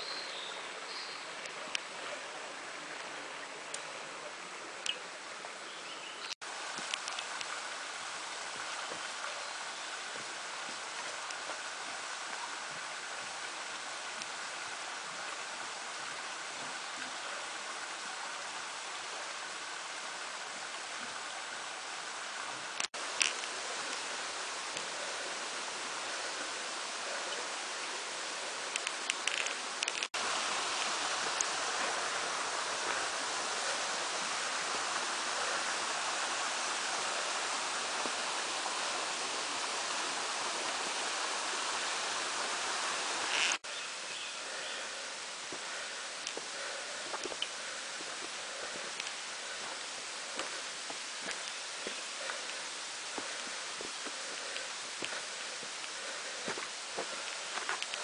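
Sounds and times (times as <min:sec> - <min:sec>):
mountain stream rushing: 0:00.0 - 0:58.0
faint clicks: 0:06.2 - 0:07.5, 0:28.7 - 0:30.1, 0:57.2 - 0:58.0.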